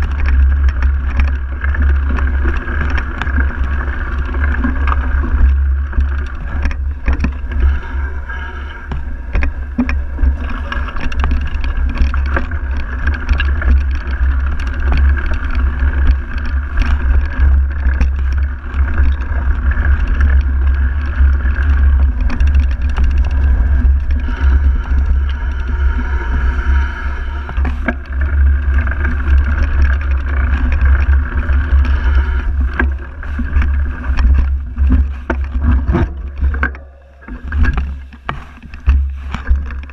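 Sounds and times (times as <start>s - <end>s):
bike knocks and rattles: 0.0s - 39.9s
knobby tyres humming on dirt: 0.0s - 39.9s
wind and frame vibration rumble: 0.0s - 39.9s.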